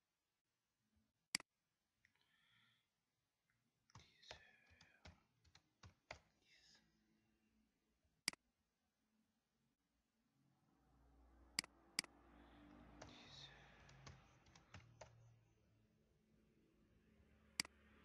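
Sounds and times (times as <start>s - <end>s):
computer mouse click: 3.9s - 6.3s, 13.8s - 15.2s
computer keyboard typing: 3.9s - 6.4s, 12.9s - 15.3s.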